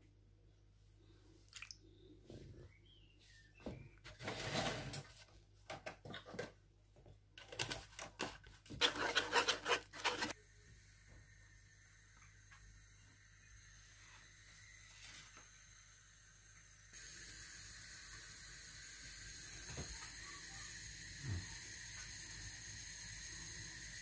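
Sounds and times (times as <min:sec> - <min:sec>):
whisk scraping and stirring batter: 0:07.8 - 0:10.4.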